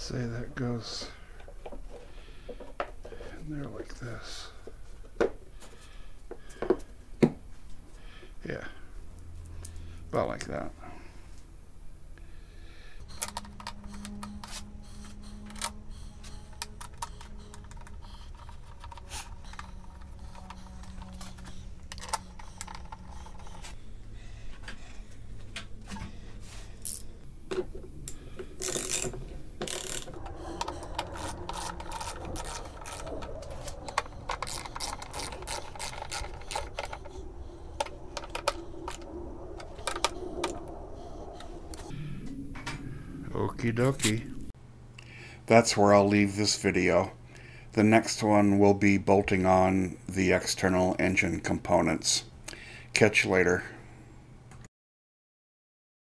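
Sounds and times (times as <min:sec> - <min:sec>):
ratchet wrench clicking: 0:28.6 - 0:30.1.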